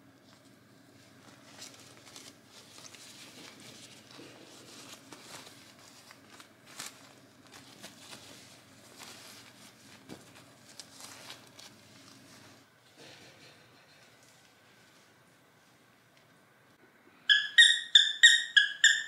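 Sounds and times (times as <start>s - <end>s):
diaper rustling and crinkling: 1.0s - 12.6s.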